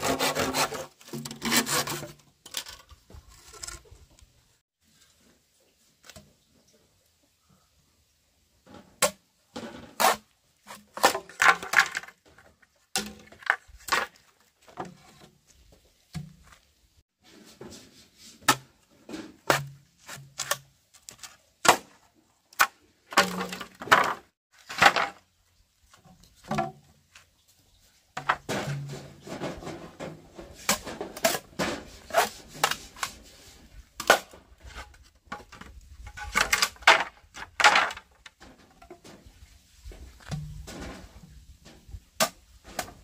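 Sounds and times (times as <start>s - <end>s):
bamboo knocks and clacks: 25.9s - 27.3s, 39.9s - 43.0s.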